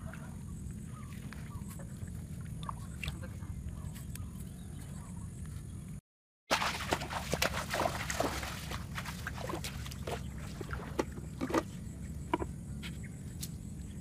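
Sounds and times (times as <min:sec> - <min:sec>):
feet splashing through shallow water: 0:06.5 - 0:11.2.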